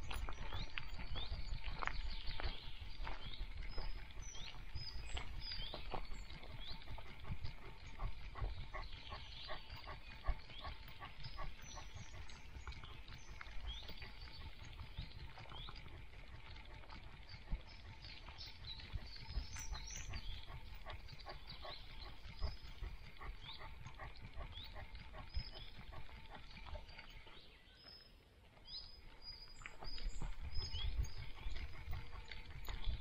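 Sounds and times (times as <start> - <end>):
small birds chirping: 0.0 - 33.0.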